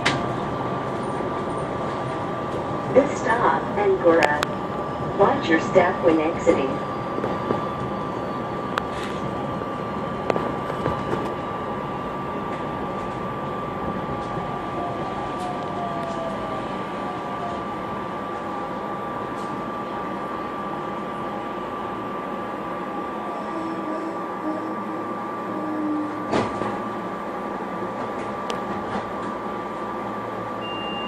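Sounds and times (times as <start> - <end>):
train equipment rumble and hiss: 0.0 - 31.0.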